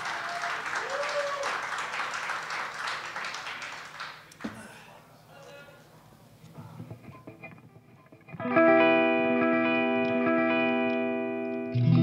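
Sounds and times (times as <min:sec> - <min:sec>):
short cheer: 0:00.0 - 0:01.6
audience clapping: 0:00.0 - 0:04.6.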